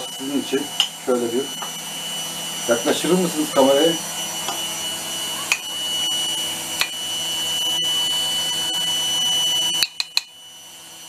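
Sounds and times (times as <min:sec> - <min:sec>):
mechanical hum with high whine: 0:00.0 - 0:11.0.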